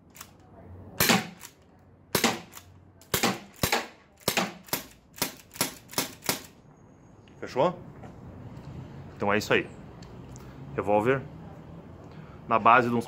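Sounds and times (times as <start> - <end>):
airsoft revolver shots: 1.0 - 1.5, 2.1 - 6.5.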